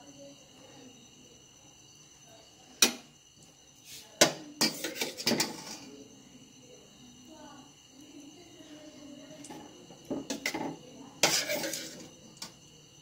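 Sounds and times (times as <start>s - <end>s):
clinks and scrapes: 3.9s - 5.9s, 10.2s - 12.1s.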